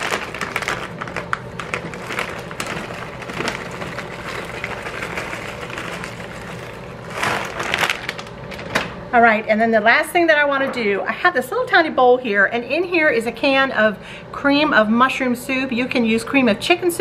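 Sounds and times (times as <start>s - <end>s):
frozen vegetables pattering: 0.0s - 8.7s.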